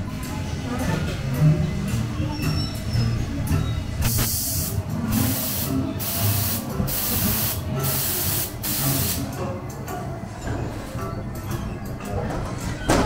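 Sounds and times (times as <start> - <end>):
compressed air hissing bursts: 4.0 - 9.3.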